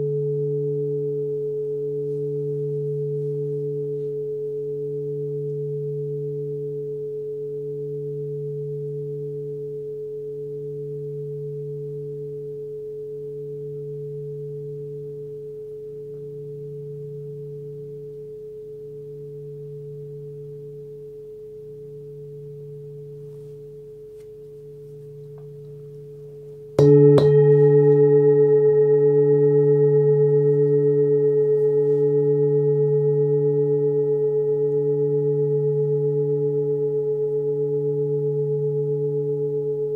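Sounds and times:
singing bowl ringing: 0:00.0 - 0:39.9
mallet striking singing bowl: 0:26.8 - 0:35.2.

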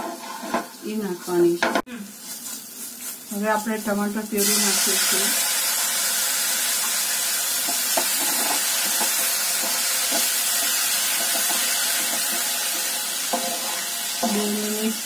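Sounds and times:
spoon scraping a pan: 0:00.0 - 0:00.8, 0:07.6 - 0:15.0
food sizzling in oil: 0:00.0 - 0:15.0.

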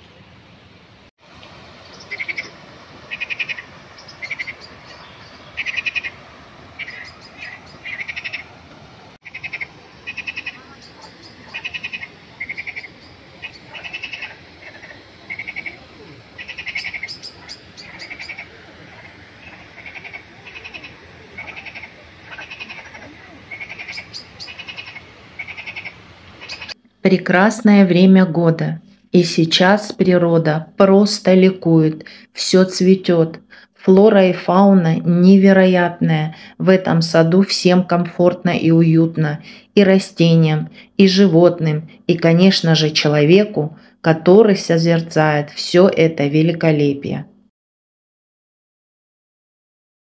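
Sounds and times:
frogs croaking: 0:01.5 - 0:26.9.

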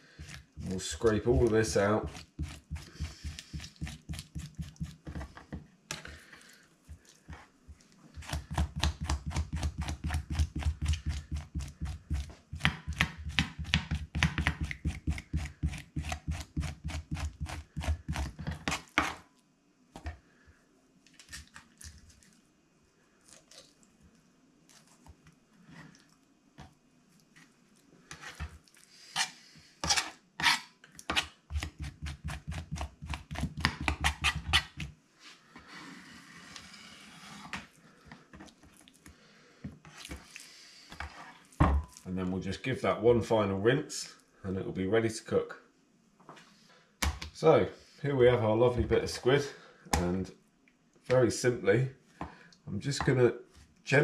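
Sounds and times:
knife scraping on wooden board: 0:01.4 - 0:05.2, 0:14.6 - 0:19.2, 0:29.1 - 0:32.8.

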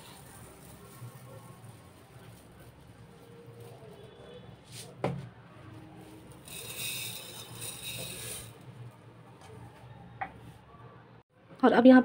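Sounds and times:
sugar pouring hiss: 0:00.0 - 0:04.1, 0:05.8 - 0:08.8.

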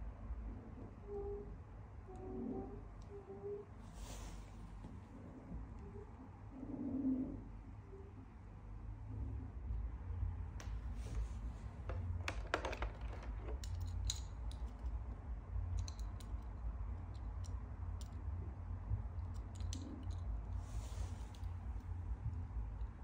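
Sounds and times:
toy cars clicking and tapping: 0:12.0 - 0:14.9.

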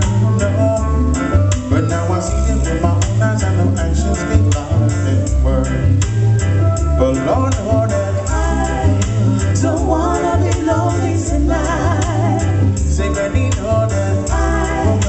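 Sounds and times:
heavy bass line: 0:00.0 - 0:15.0
reggae band playing: 0:00.0 - 0:15.0
steady ticking beat: 0:00.0 - 0:15.0
women singing: 0:07.9 - 0:15.0.

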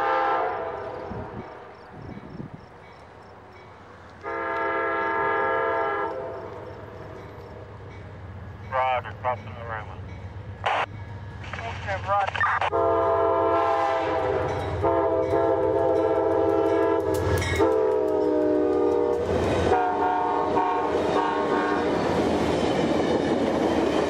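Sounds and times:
train air horn blasts: 0:00.0 - 0:01.4, 0:04.2 - 0:06.7, 0:12.7 - 0:21.9
train wheels clickety-clack: 0:14.4 - 0:24.0.

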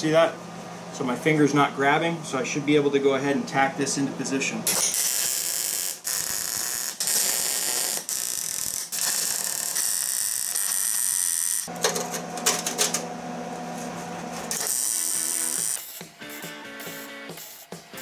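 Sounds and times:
steady low hum: 0:00.0 - 0:05.1
welder arc crackling: 0:04.7 - 0:11.7, 0:14.5 - 0:16.1.

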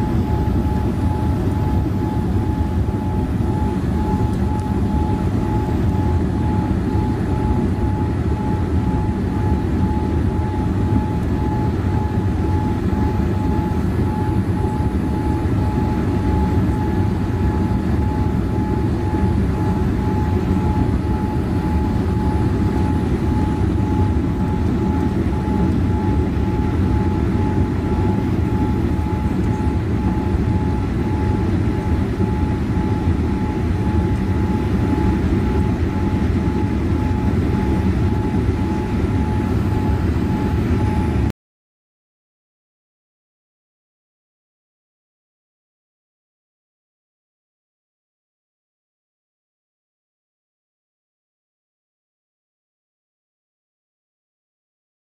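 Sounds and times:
jet engine and airflow rush: 0:00.0 - 0:41.3
thin constant whine: 0:00.0 - 0:41.3.

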